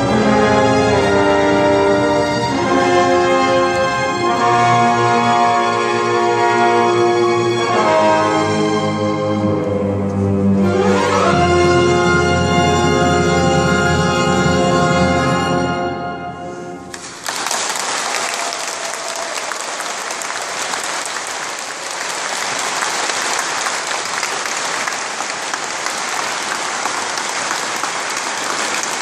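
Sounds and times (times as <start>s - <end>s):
audience applause: 16.9s - 29.0s.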